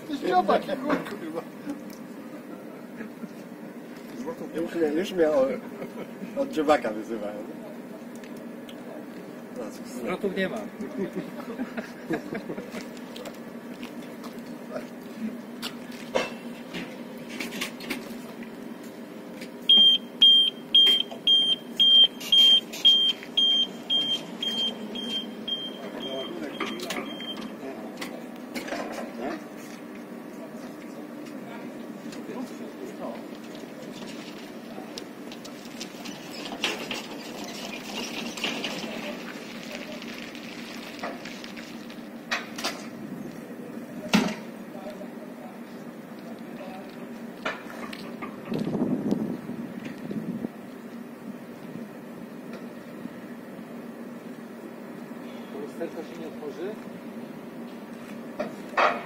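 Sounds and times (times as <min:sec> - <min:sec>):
truck engine humming: 0:00.0 - 0:28.5, 0:29.4 - 0:56.1
single-tone warning beeper: 0:19.7 - 0:27.5
crackling: 0:33.1 - 0:42.6.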